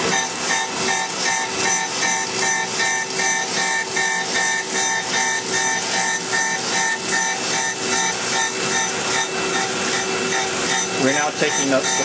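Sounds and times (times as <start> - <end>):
surface grinder wheel grinding steel: 0.0 - 12.0.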